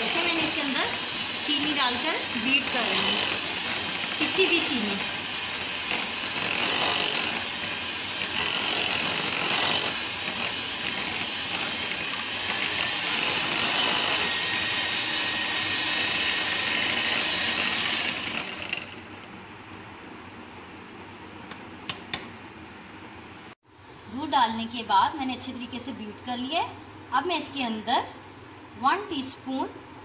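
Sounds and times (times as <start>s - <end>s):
electric hand mixer whirring: 0.0s - 19.3s.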